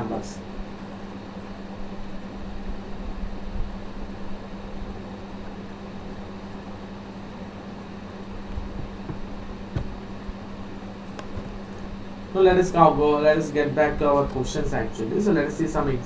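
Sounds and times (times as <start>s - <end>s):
low hum: 0.0s - 16.0s
room noise hiss: 0.0s - 16.0s
faint knock: 8.8s - 10.0s.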